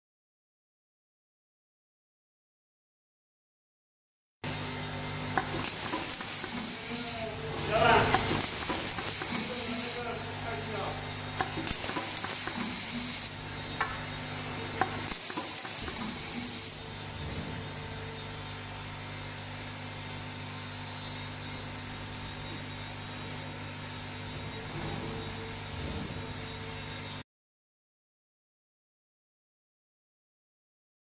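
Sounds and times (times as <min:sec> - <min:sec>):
machine hissing: 0:04.5 - 0:18.0
sharp machine clicks: 0:05.4 - 0:06.8, 0:08.1 - 0:10.0, 0:11.3 - 0:13.9, 0:14.8 - 0:16.7.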